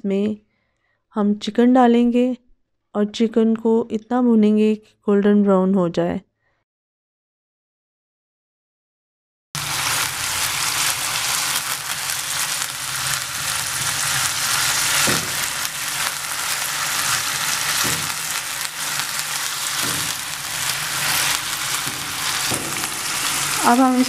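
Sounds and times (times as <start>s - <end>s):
chicken sizzling in hot oil: 9.6s - 24.0s.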